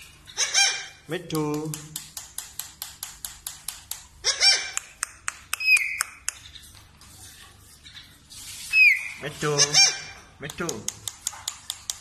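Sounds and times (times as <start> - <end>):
parakeet squawk: 0.3 - 1.1, 4.2 - 5.0, 8.7 - 10.2
parakeet sharp clicks: 1.5 - 6.5, 10.4 - 12.0.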